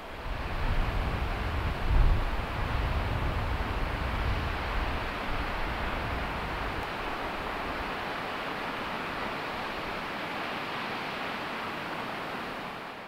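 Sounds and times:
wind rumble on microphone: 0.0s - 8.1s
waterfall rushing: 4.5s - 13.0s.

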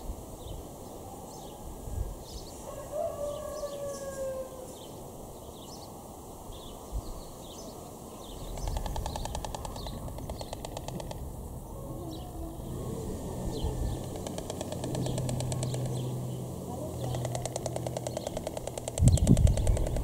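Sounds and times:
small birds chirping: 3.4s - 20.0s
stork bill-clattering: 13.9s - 16.2s, 16.8s - 20.0s.

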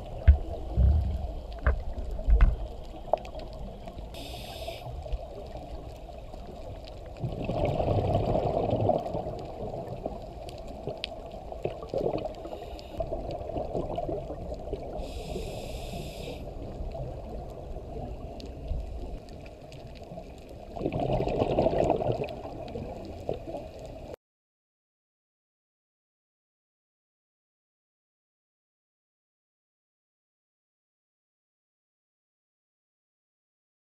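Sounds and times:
muffled underwater rumble: 0.0s - 24.2s
regulator inhale hiss: 4.1s - 5.1s, 12.4s - 13.1s, 14.9s - 16.6s
diver exhaling bubbles: 7.2s - 9.4s, 20.8s - 22.4s.

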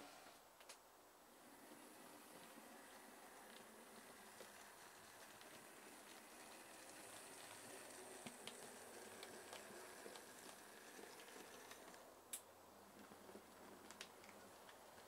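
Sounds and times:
model train motor whine: 1.3s - 12.1s
wheels clicking on track: 1.4s - 12.1s.

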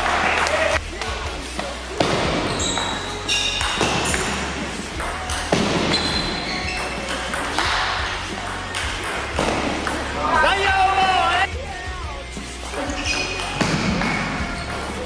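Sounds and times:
short high squeaks: 2.5s - 4.2s, 5.9s - 7.2s.

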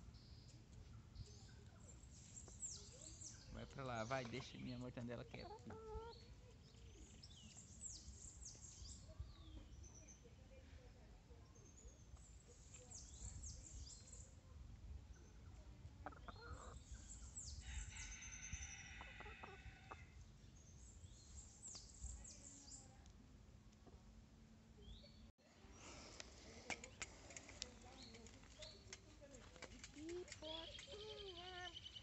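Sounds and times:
hen clucking: 4.1s - 6.2s, 16.0s - 16.8s.

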